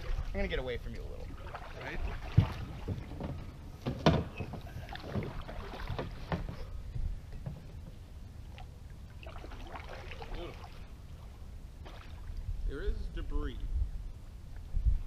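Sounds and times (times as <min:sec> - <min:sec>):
paddle knocking on canoe hull: 0:01.4 - 0:06.7.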